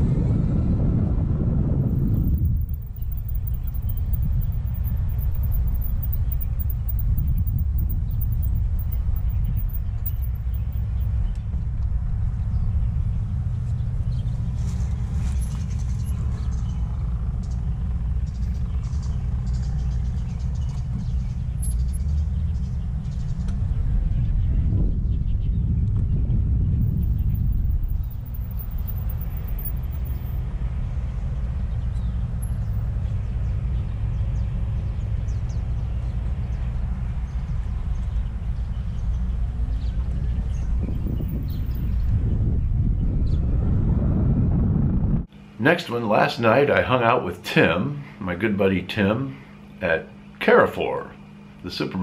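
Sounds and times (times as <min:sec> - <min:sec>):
wind buffeting microphone: 0:00.0 - 0:45.3
faint high chirps: 0:01.9 - 0:11.1, 0:26.8 - 0:30.4.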